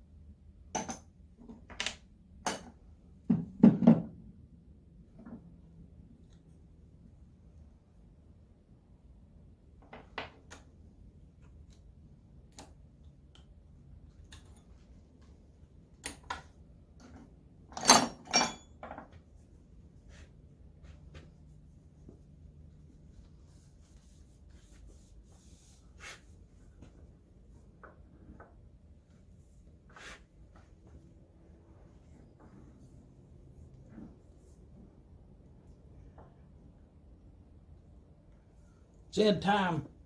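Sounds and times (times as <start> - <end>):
metal parts and tools clinking: 17.7 - 19.0.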